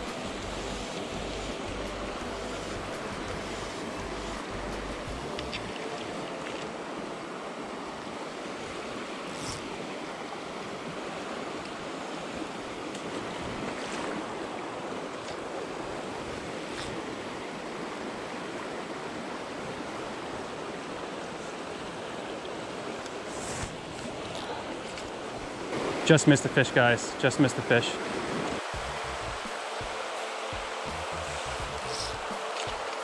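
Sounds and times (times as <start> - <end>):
river rushing over rocks: 25.2 - 33.0.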